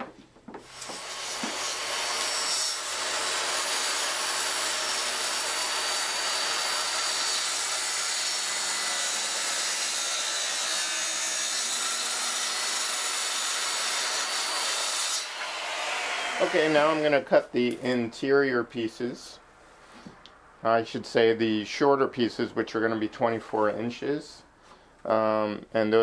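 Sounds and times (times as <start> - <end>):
rasp of wood being cut: 0.6 - 13.6.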